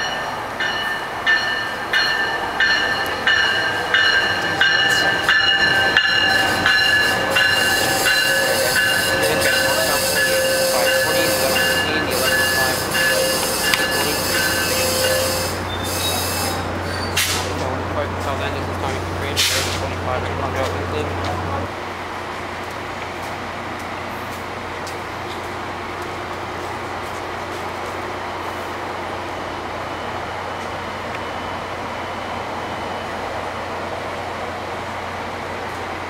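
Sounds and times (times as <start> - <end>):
diesel locomotive hum: 0.0 - 36.0
train wheels clicking over joints: 0.6 - 21.4
brakes squealing: 0.8 - 21.6.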